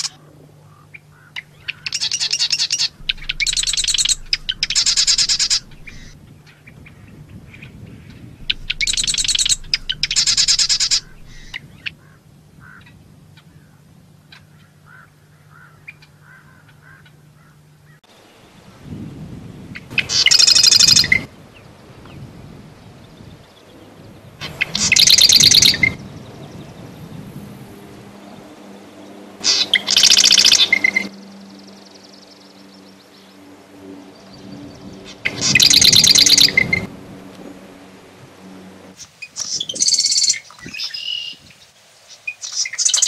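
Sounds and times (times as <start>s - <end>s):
faint short bird notes: 0.0s - 12.8s
wren singing trills: 0.0s - 12.8s, 20.0s - 21.7s, 23.0s - 27.3s, 28.1s - 33.4s, 34.0s - 36.9s, 39.0s - 43.0s.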